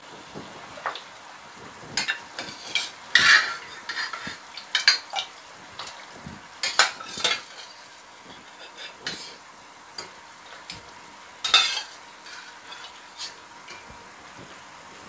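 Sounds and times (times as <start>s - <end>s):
utensil scraping metal pot: 2.0s - 9.4s, 11.4s - 13.9s.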